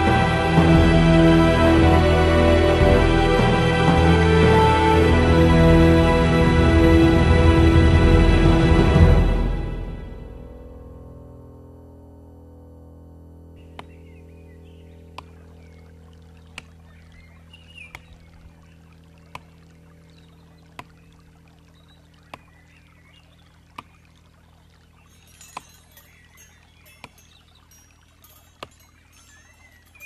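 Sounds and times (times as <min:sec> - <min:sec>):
quiet orchestral music: 0:00.0 - 0:11.0
faint high jingling: 0:24.5 - 0:30.0.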